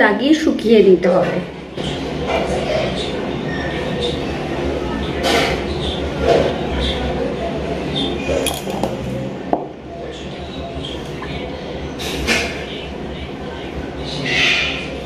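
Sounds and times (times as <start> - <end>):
steady low hum: 0.0 - 15.0
faint voices: 0.9 - 15.0.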